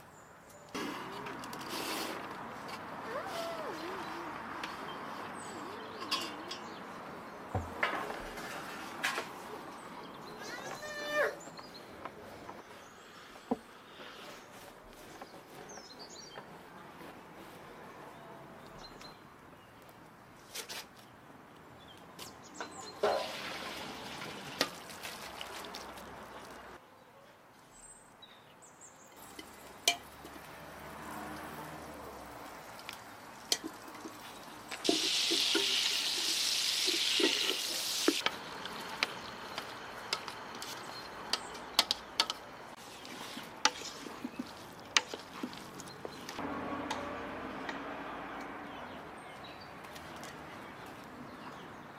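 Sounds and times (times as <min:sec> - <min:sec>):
spoon stirring noodles in pot: 0:39.0 - 0:46.3.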